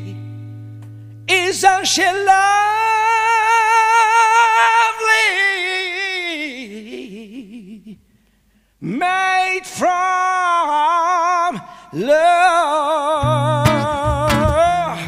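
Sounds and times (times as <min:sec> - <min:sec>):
man singing high note with vibrato: 0:01.3 - 0:08.0, 0:08.8 - 0:15.0.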